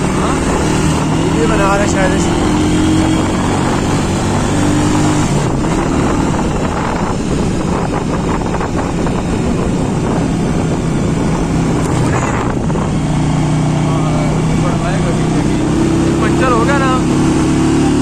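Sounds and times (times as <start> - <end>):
motorcycle engine running: 0.0 - 18.0
wind rushing over microphone: 0.0 - 18.0.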